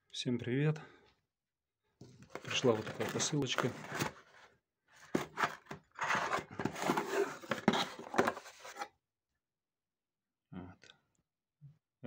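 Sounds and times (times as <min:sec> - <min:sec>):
cardboard flaps scraping and rustling: 0:02.3 - 0:04.4, 0:05.0 - 0:08.9.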